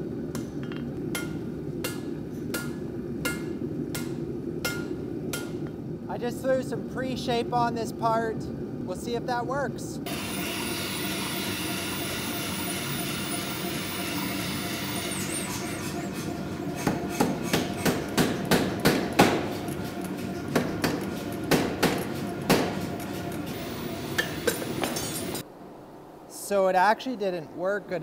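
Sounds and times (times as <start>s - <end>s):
steady machine hum: 0.0s - 25.7s
power hammer striking hot steel: 1.1s - 5.7s, 10.1s - 25.4s.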